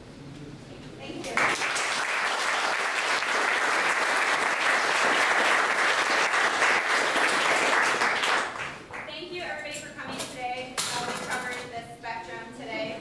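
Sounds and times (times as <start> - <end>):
audience applause: 1.4 - 9.0.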